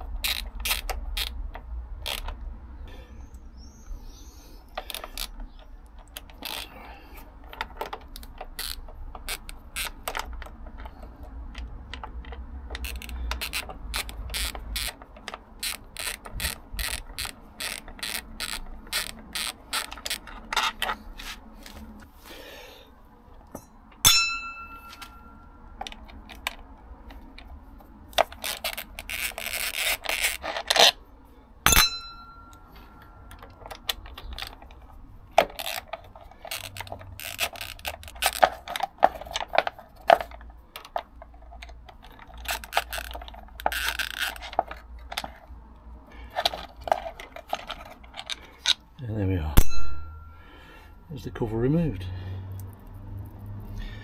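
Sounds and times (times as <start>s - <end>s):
hand ratchet clicking: 0.0s - 2.4s, 4.7s - 21.8s, 28.1s - 31.0s, 31.7s - 45.3s
metal bolts and tools clinking: 7.4s - 21.8s, 23.4s - 27.5s, 31.7s - 45.4s, 46.3s - 48.8s
sharp metallic strikes: 23.6s - 25.0s, 31.7s - 32.6s.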